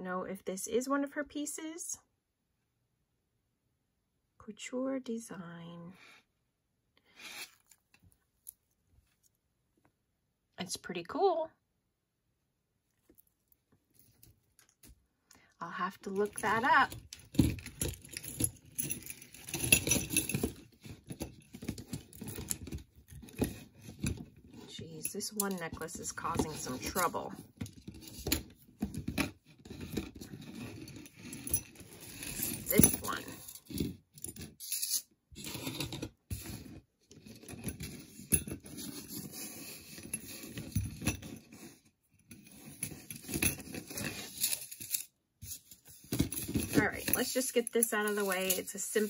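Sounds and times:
metal jewelry chains clinking: 0:16.0 - 0:36.1, 0:42.2 - 0:49.0.

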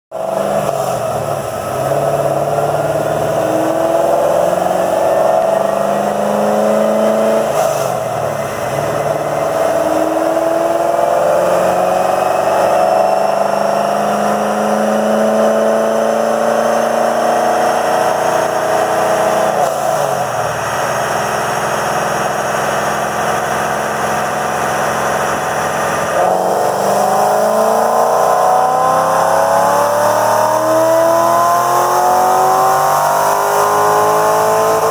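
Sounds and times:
car engine revving on dynamometer: 0:00.1 - 0:34.9.

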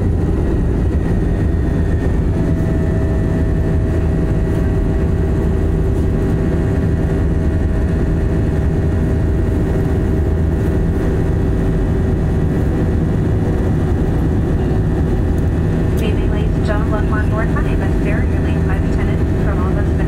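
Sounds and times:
jet engine cabin rumble: 0:00.0 - 0:20.0
faint steady tones: 0:13.9 - 0:20.0.

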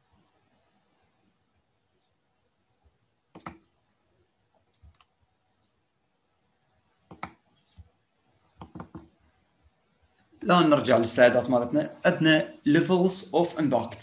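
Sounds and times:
computer mouse clicking: 0:03.3 - 0:03.8, 0:04.6 - 0:05.3, 0:07.0 - 0:08.0, 0:08.6 - 0:09.2.

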